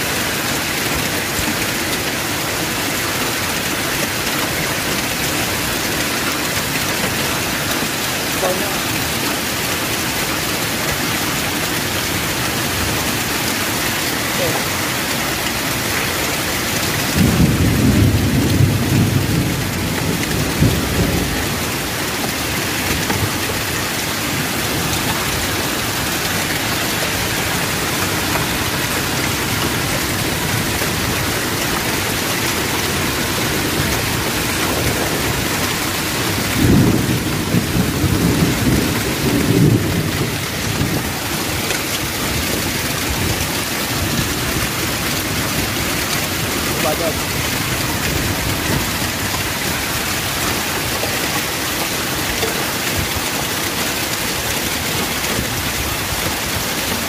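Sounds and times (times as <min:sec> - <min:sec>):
hail and rain falling: 0:00.0 - 0:57.0.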